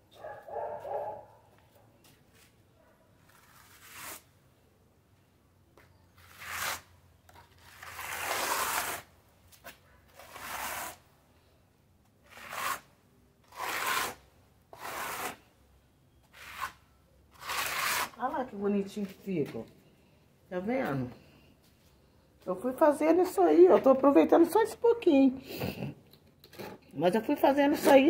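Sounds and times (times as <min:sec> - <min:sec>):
float scraping mortar on wall: 0:03.2 - 0:04.3, 0:06.1 - 0:09.2, 0:10.1 - 0:11.1, 0:12.2 - 0:15.5, 0:16.2 - 0:18.6.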